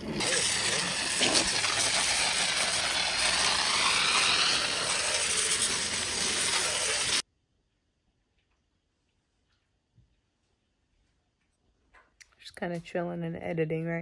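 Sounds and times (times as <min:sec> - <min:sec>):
water spraying from hose: 0:00.2 - 0:07.2.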